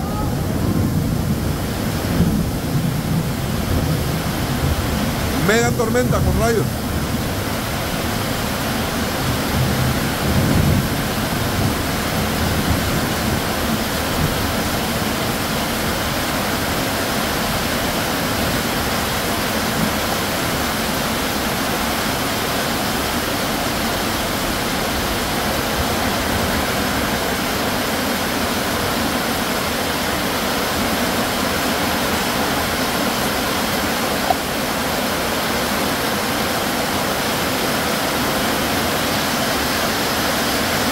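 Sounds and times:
gusty wind rumble: 0.0s - 21.8s
torrential rain pouring: 0.0s - 40.9s.

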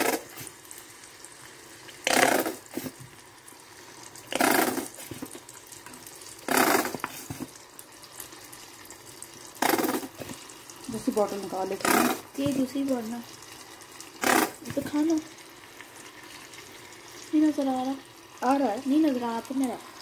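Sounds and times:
squeeze bottle spluttering squirts: 2.0s - 3.0s, 4.3s - 5.4s, 6.5s - 7.5s, 9.6s - 10.4s, 11.8s - 12.6s, 14.2s - 14.8s.

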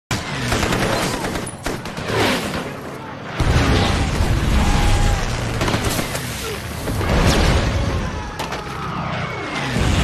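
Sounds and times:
rapid machine-gun fire: 0.2s - 2.6s, 5.4s - 6.2s.

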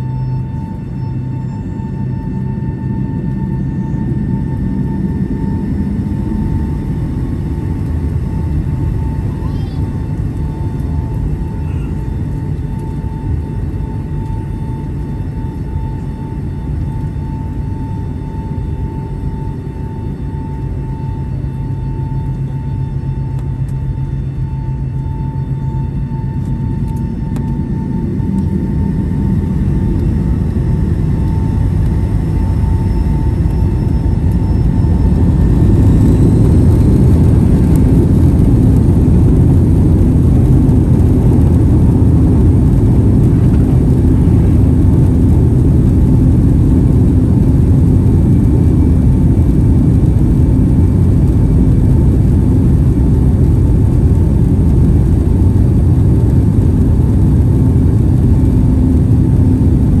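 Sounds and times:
thin engine whine: 0.0s - 60.0s
jet engines spooling up: 21.0s - 60.0s.

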